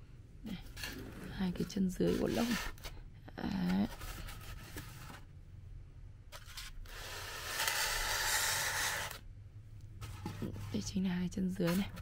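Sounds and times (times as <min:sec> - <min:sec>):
object scraping on foam: 0:00.7 - 0:02.9.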